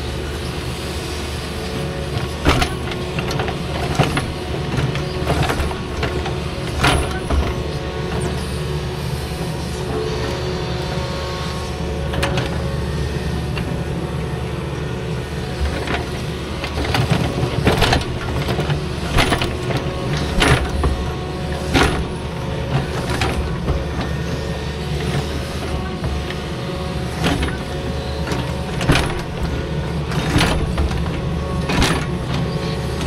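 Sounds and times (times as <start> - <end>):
heavy diesel engine running: 0.0 - 33.0.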